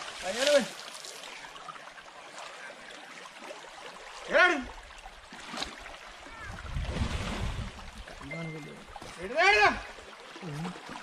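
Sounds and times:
stream water rushing: 0.0s - 11.0s
person shouting a call: 9.2s - 9.9s.

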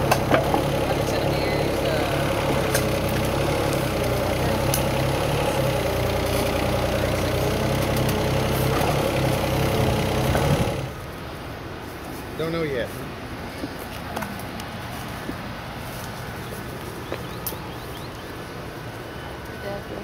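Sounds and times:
diesel engine idling: 0.0s - 11.7s.

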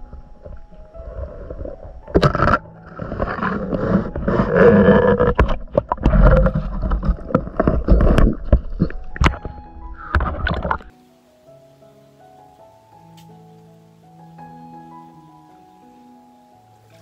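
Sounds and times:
water churning and bubbling underwater: 0.0s - 11.0s.

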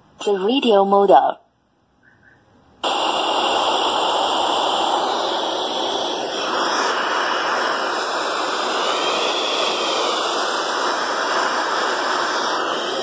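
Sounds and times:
radio static hiss: 2.8s - 13.0s.

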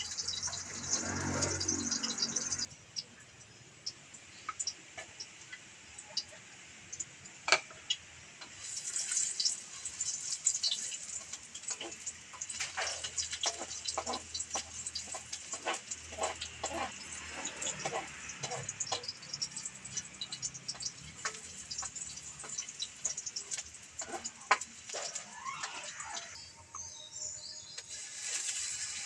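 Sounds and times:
food sizzling in oil: 0.0s - 2.7s, 3.8s - 26.9s, 27.5s - 29.0s
spatula scraping a wok: 0.0s - 2.7s, 8.5s - 26.4s, 27.7s - 29.0s.

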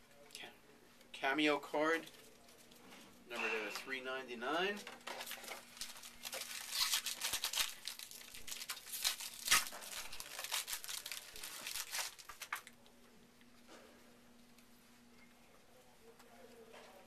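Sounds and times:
trading cards crinkling and rustling: 4.6s - 12.9s.

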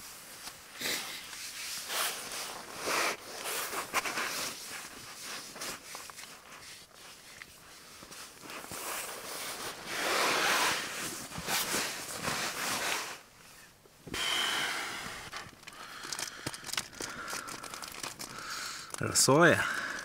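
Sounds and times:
tent fabric rustling: 0.0s - 13.8s.

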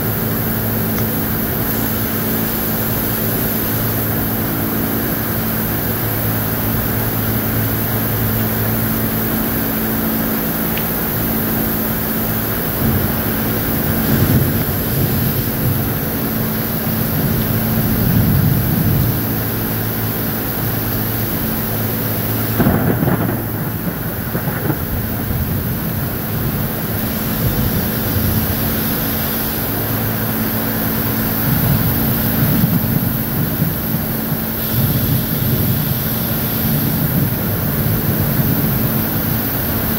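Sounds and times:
heavy rain pouring: 0.0s - 39.9s
low machine hum: 0.0s - 39.9s
thunder rumbling: 22.4s - 28.6s
thunder crack: 22.5s - 28.4s.

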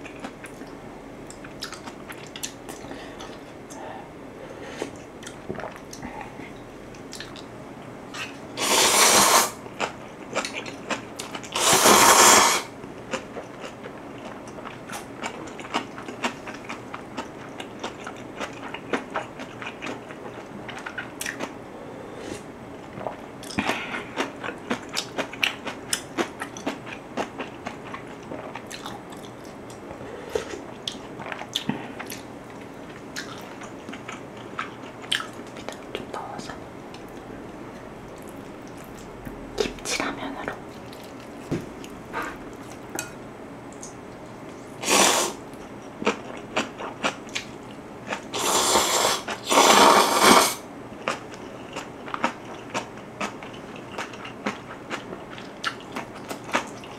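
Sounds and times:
chewing and crunching: 0.0s - 3.6s, 9.6s - 11.6s, 12.9s - 21.6s, 22.8s - 44.8s, 45.5s - 48.4s, 50.9s - 56.9s
loud slurping of noodles: 8.6s - 9.6s, 11.6s - 12.7s, 44.8s - 45.4s, 48.3s - 50.6s.

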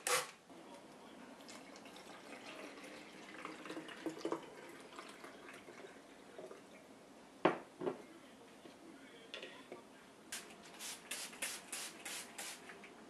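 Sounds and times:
glass cup knocking on countertop: 7.4s - 8.0s.

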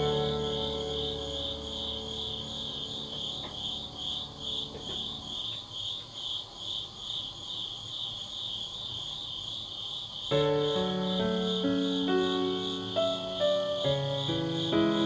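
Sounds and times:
soft background music: 0.0s - 5.6s, 10.3s - 15.0s
insects chirping: 0.0s - 15.0s.

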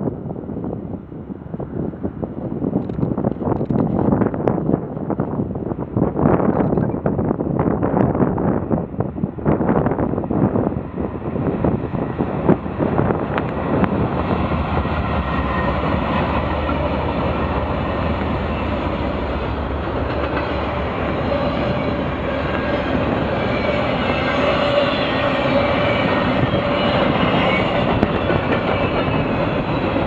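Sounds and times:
diesel locomotives rumbling: 0.0s - 30.0s
train wheels on rails: 7.8s - 30.0s.

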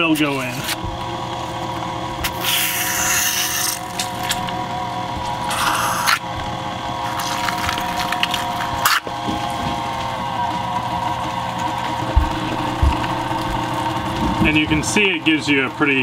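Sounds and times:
meat grinder motor whine: 0.0s - 16.0s
plastic stomper scraping and squishing: 12.0s - 14.6s.

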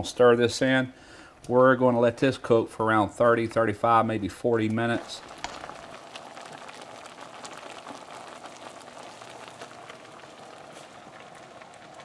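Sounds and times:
pot simmering with tiny pops: 4.5s - 12.0s.

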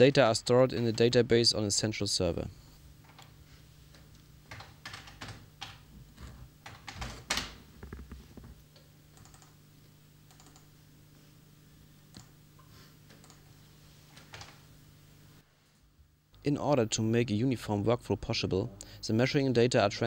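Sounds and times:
low steady hum: 0.0s - 20.0s
computer keyboard typing: 4.5s - 8.5s, 9.2s - 9.6s, 10.3s - 10.7s, 13.2s - 13.4s, 14.2s - 14.6s.

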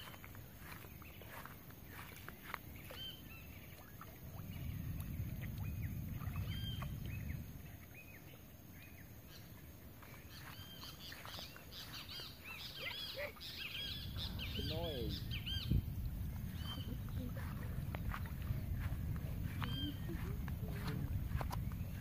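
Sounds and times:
birds chirping: 0.0s - 22.0s
low rumbling noise: 3.2s - 8.2s, 13.8s - 22.0s.

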